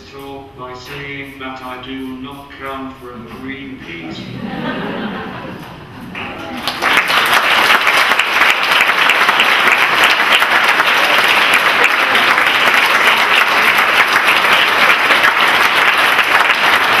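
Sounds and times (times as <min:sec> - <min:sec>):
audience applauding: 0:06.1 - 0:17.0.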